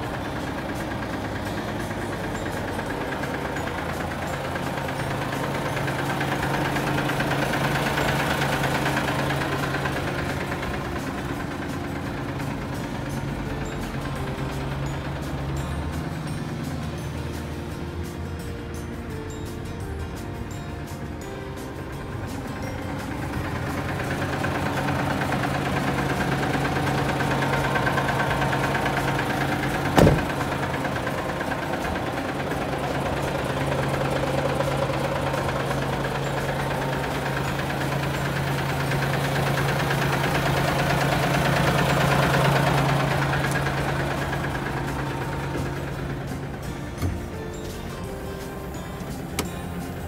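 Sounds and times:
diesel truck engine idling: 0.0 - 50.0
sharp knock: 30.0 - 30.3.

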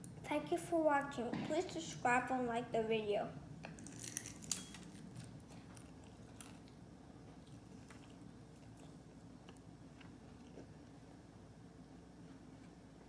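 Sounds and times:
low steady hum: 0.0 - 13.0
crunching and chewing: 3.6 - 11.2.

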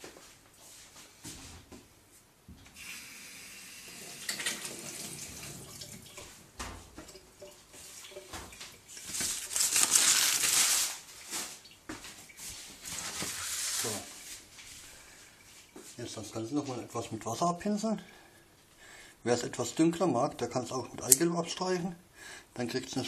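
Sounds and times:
baking paper rustling: 8.9 - 14.9.

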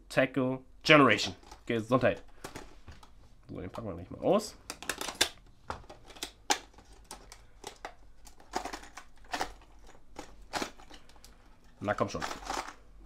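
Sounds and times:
packaging clicking and crinkling: 1.3 - 3.2, 4.6 - 13.0.

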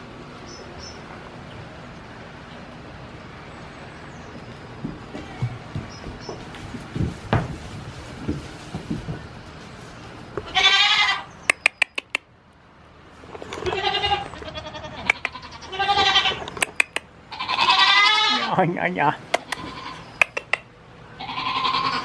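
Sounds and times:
soft knocks and rustling: 4.8 - 10.5
goats bleating: 10.4 - 11.3, 13.6 - 16.5, 17.3 - 18.7, 19.3 - 20.5, 21.2 - 22.0
sharp clicks: 11.5 - 12.3, 16.4 - 17.1, 19.3 - 20.7.

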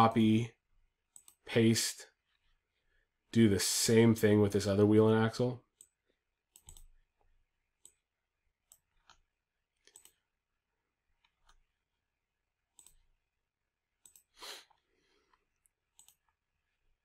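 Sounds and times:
computer mouse clicks: 1.1 - 1.4, 5.7 - 10.3, 11.2 - 11.7, 12.7 - 13.1, 14.0 - 14.8, 15.6 - 16.4.

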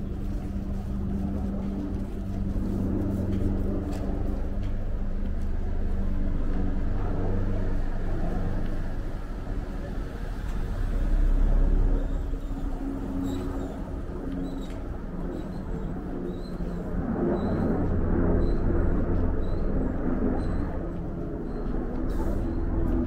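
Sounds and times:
deep rumble of passing vehicle: 0.0 - 23.0.

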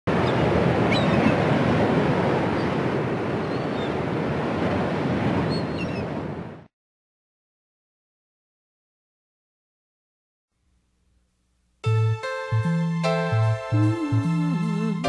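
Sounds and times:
waves rushing: 0.1 - 6.5.

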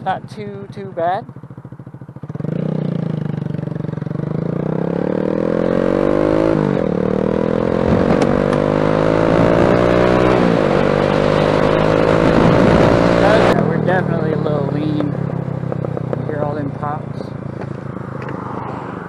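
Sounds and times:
motorcycle engine accelerating: 0.0 - 19.0
wind rush on microphone: 9.3 - 13.6.

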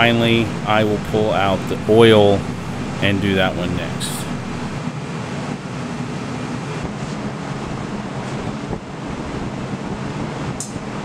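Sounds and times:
gas forge burner roaring: 0.0 - 4.8.

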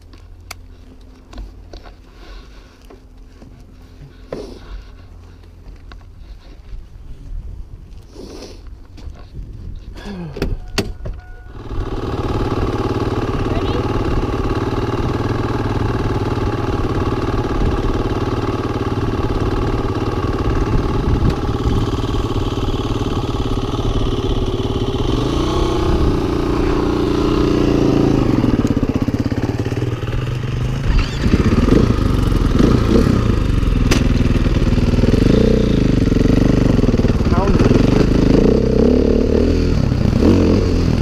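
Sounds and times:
dirt bike engines idling: 11.4 - 41.0
dirt bike revving and accelerating: 11.6 - 41.0.

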